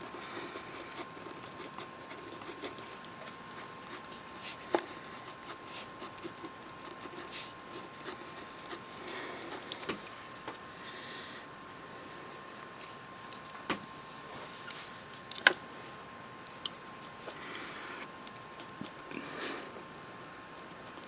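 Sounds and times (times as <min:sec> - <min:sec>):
pen scratching on paper: 0:00.1 - 0:09.9.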